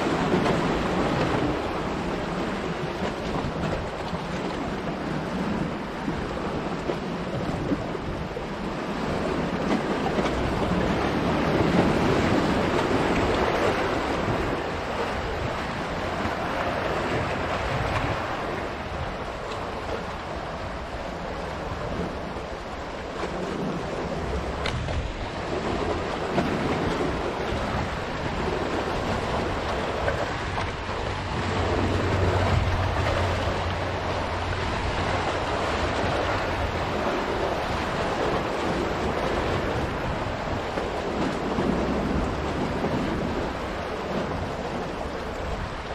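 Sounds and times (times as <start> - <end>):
waves splashing against boulders: 0.0 - 45.9.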